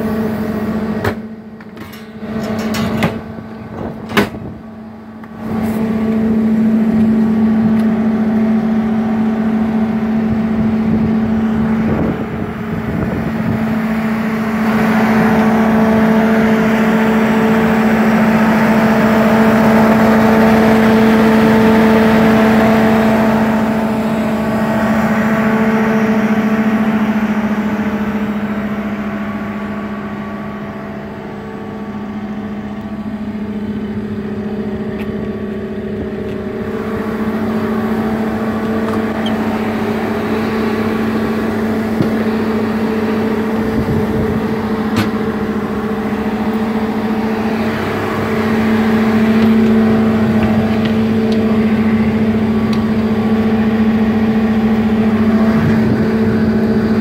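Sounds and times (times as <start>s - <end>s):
cooling fan running: 0.0s - 57.0s
diesel engine idling: 0.0s - 57.0s.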